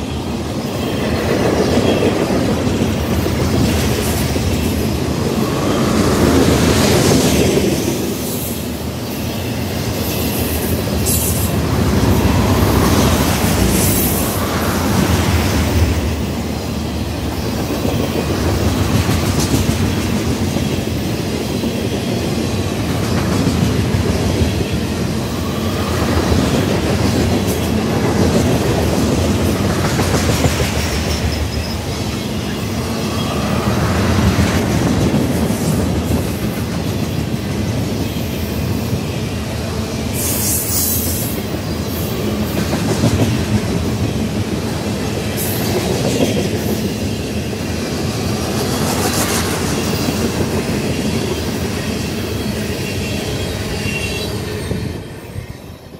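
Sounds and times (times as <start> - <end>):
freight train rolling past: 0.0 - 55.9
high wheel squeal: 52.0 - 55.9.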